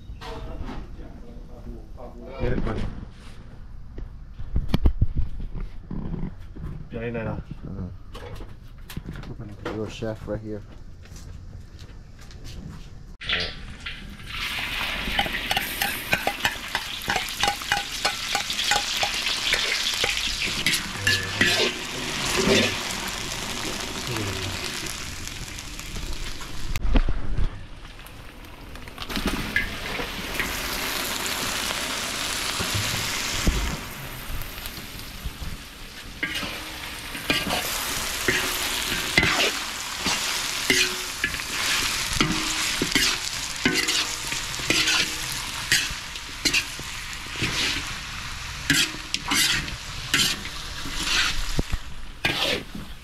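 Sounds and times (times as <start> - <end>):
meat sizzling in oil: 13.3 - 26.8, 27.9 - 53.0
metal spatula scraping wok: 14.6 - 22.9, 36.1 - 47.9, 48.6 - 53.0.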